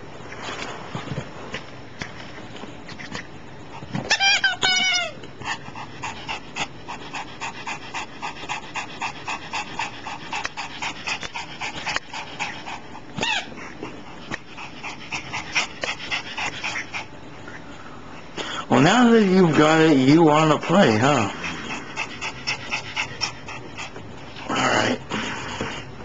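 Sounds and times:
dog panting quickly: 0:05.4 - 0:17.6, 0:18.2 - 0:24.5.

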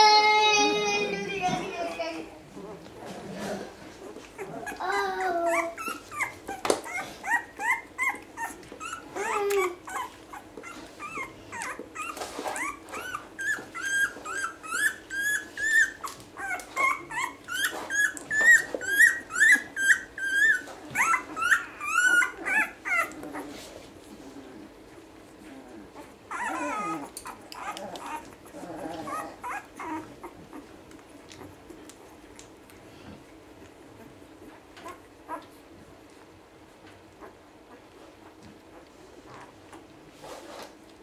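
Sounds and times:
puppies squeaking and whimpering: 0:03.0 - 0:32.7, 0:33.5 - 0:36.2, 0:37.0 - 0:40.6.

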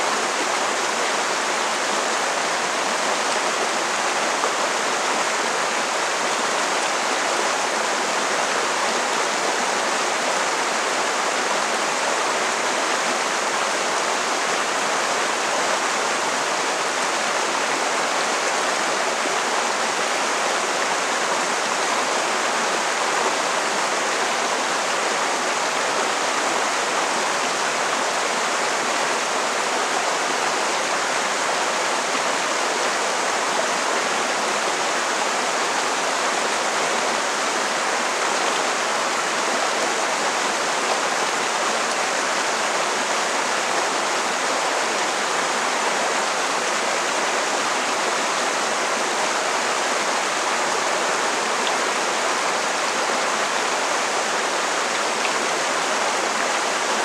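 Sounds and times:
stream rushing over boulders: 0:00.0 - 0:57.0.

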